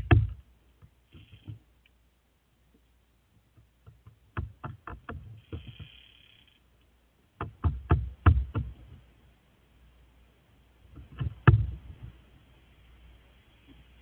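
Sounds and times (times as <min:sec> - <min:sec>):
crow pecking wooden railing: 0:03.4 - 0:06.3, 0:07.4 - 0:09.0, 0:10.9 - 0:12.2.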